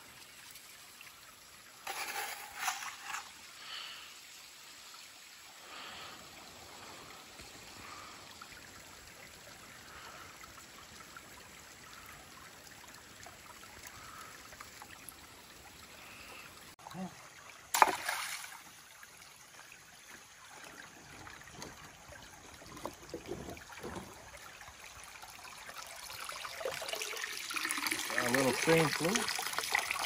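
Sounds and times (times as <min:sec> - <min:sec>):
creek water trickling: 0:00.0 - 0:30.0
scoop scraping and pouring gravel: 0:01.8 - 0:03.8.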